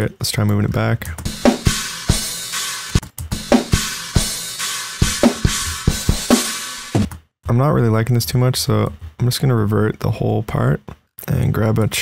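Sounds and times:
drum hits: 1.2s - 7.1s.

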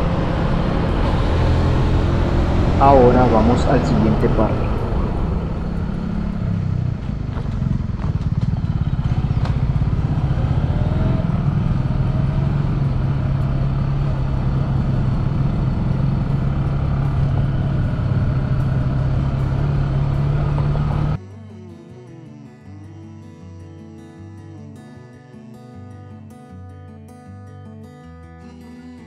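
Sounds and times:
motorcycle engine running: 0.0s - 21.2s.

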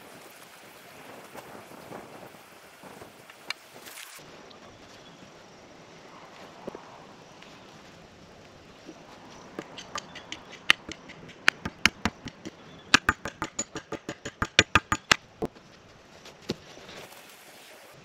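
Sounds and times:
hammer knocking on wooden board: 9.6s - 15.2s.

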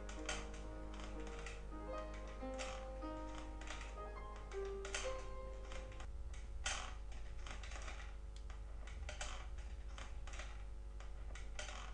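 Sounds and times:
piano notes: 0.0s - 6.1s.

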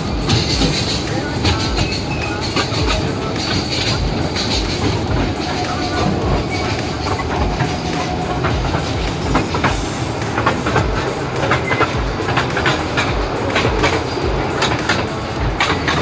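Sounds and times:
small train rumbling on track: 0.0s - 16.0s
wheels clicking over rails: 0.0s - 16.0s.

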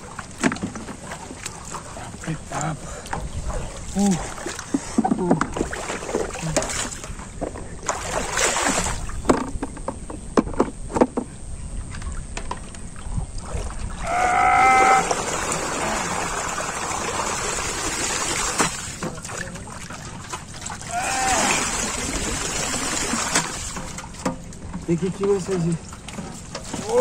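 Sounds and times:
water splashing and sloshing: 0.0s - 27.0s
water streaming out of pot: 13.5s - 19.2s, 20.7s - 24.0s.

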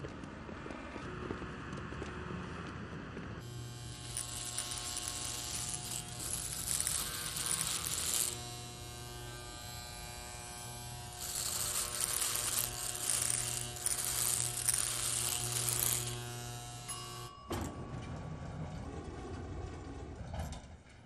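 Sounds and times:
clipper blade cutting hair: 3.4s - 17.3s
electric hair clipper buzzing: 3.4s - 17.4s.

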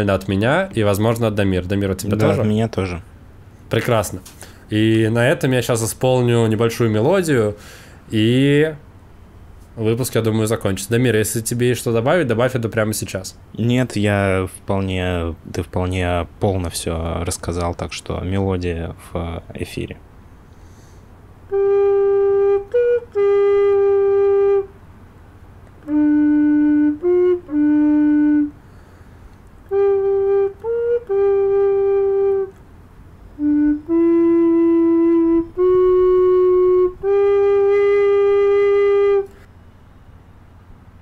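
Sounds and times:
recorder playing slow melody: 2.2s - 2.4s, 21.5s - 24.8s, 25.8s - 29.0s, 29.6s - 32.6s, 33.2s - 39.5s.

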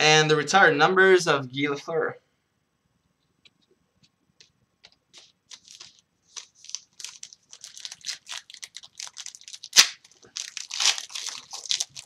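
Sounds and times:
card pack wrapper crinkling: 4.8s - 12.0s.

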